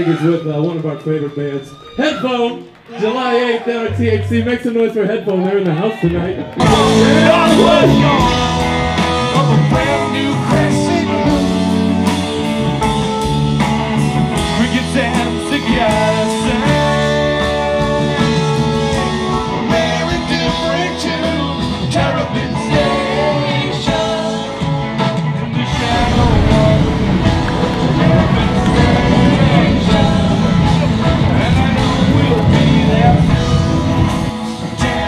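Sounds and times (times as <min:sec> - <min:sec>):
guitar: 0:06.0 - 0:35.0
person singing: 0:06.6 - 0:11.8, 0:25.7 - 0:35.0.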